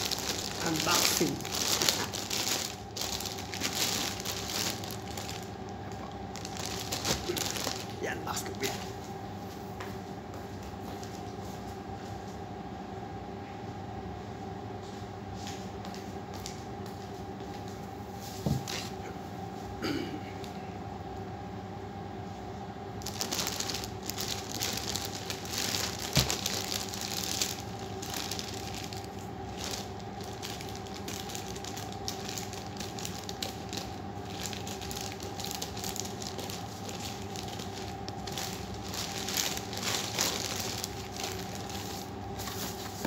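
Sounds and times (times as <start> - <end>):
plastic tearing: 0.0 - 5.5, 6.3 - 8.7, 23.0 - 42.8
plastic mailer crinkling: 0.0 - 5.6, 6.3 - 8.8, 23.0 - 43.0
steady hum: 0.0 - 43.0.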